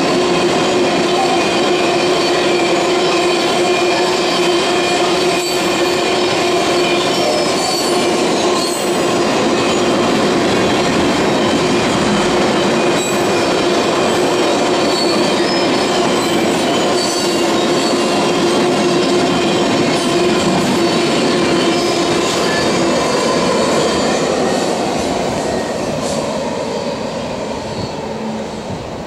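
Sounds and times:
train wheels rumbling on rails: 0:00.0 - 0:29.0
metallic wheel squeal: 0:14.1 - 0:18.3.

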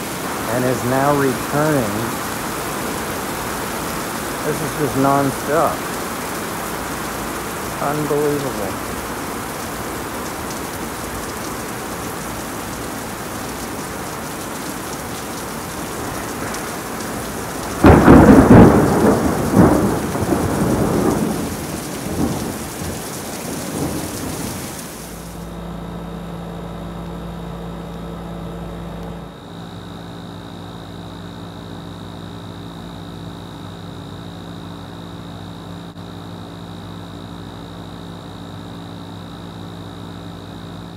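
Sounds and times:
faint high whine: 0:00.0 - 0:09.3
steady hum: 0:00.0 - 0:21.2, 0:25.0 - 0:40.9
heavy rain: 0:00.0 - 0:25.6
loud thunder crack and rumble: 0:15.8 - 0:24.6.

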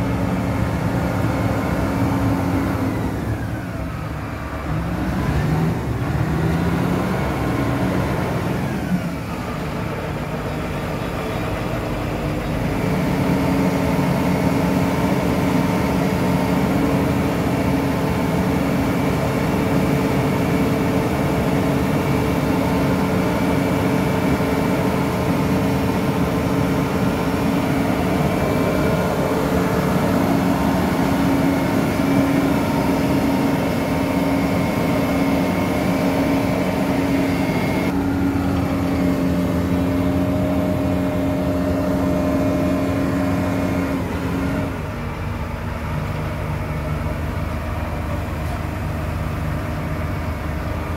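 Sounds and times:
diesel engine droning: 0:00.0 - 0:50.9.

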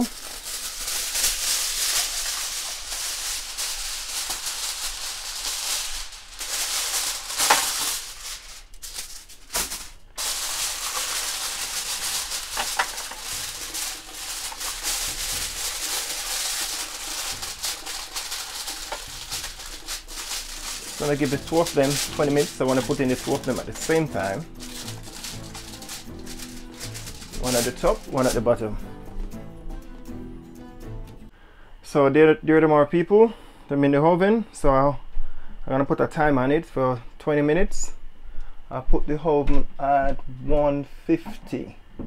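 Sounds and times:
kitchen foil crinkling: 0:00.0 - 0:28.7.

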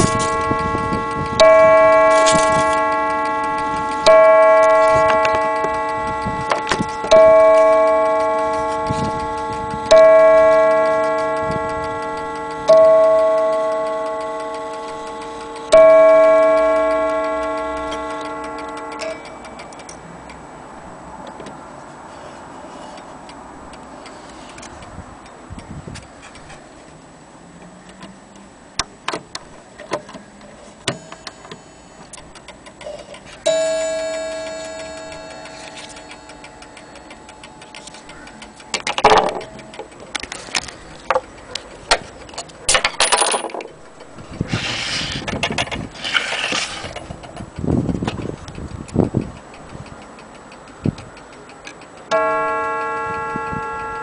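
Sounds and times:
clock gong ringing: 0:00.0 - 0:21.0, 0:30.7 - 0:32.3, 0:33.4 - 0:42.0, 0:52.1 - 0:54.0
knocks and rattles: 0:38.7 - 0:41.3, 0:41.9 - 0:44.6.

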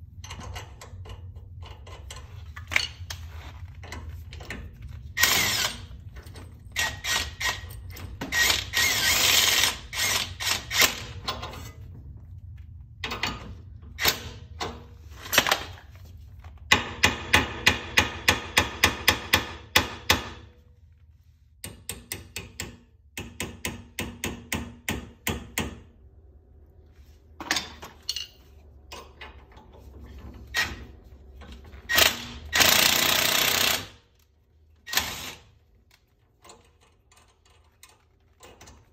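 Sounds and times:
impact wrench hammering: 0:16.7 - 0:20.4, 0:21.6 - 0:25.9, 0:31.9 - 0:34.0
metal knocks and clinks: 0:27.4 - 0:29.3.

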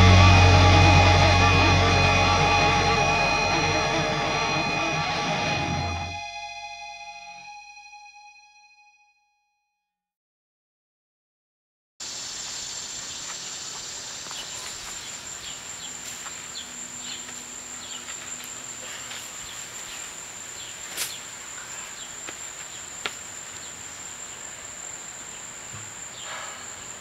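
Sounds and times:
insects droning: 0:12.0 - 0:27.0.

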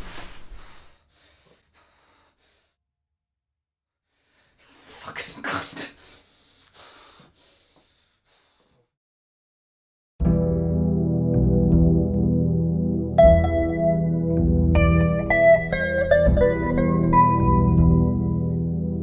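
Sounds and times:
man breathing heavily and gasping: 0:04.1 - 0:08.9.

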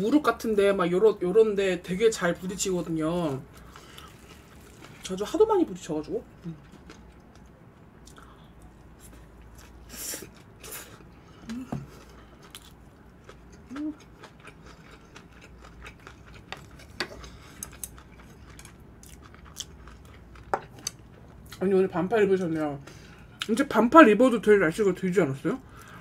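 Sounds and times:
close chewing and mouth sounds: 0:02.8 - 0:21.8.

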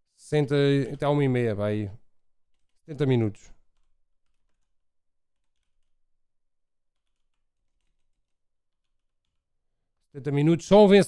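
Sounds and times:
keyboard typing: 0:02.4 - 0:10.1.

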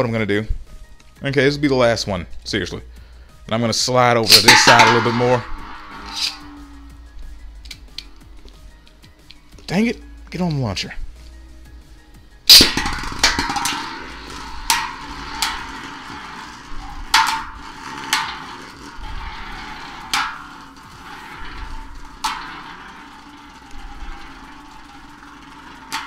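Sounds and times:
spinning top launch crack: 0:04.2 - 0:08.7, 0:12.5 - 0:26.0
tops clacking together: 0:12.5 - 0:26.0.

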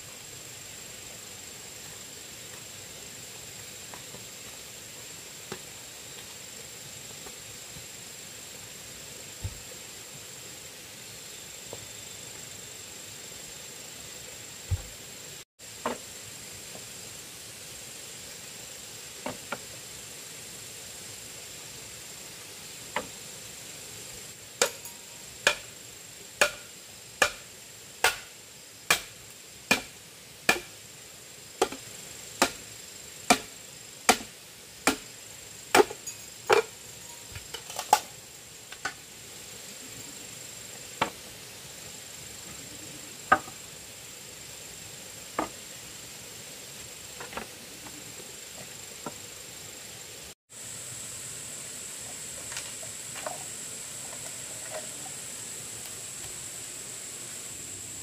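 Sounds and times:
hand tool striking bamboo: 0:24.6 - 0:25.7, 0:26.4 - 0:30.8, 0:31.6 - 0:32.7, 0:33.3 - 0:35.1, 0:35.7 - 0:36.7.

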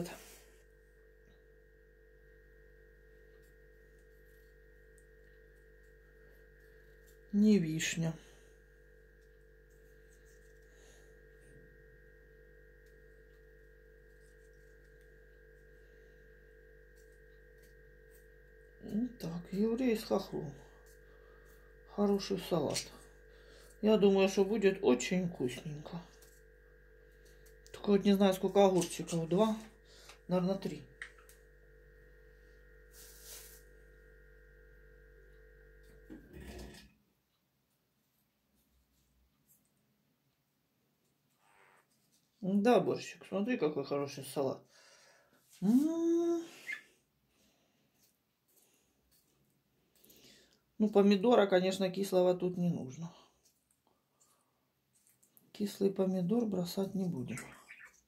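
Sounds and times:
electrical hum: 0:00.0 - 0:58.0
soft rustle: 0:32.9 - 0:33.7, 0:41.0 - 0:42.4.

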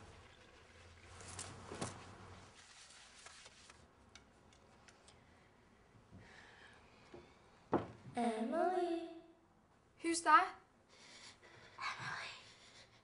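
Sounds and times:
clothes handled: 0:01.0 - 0:03.8.

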